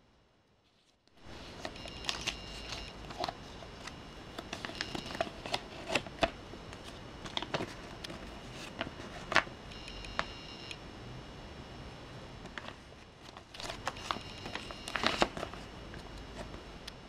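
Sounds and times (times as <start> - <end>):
paper crinkling: 0.6 - 9.5, 12.4 - 16.6.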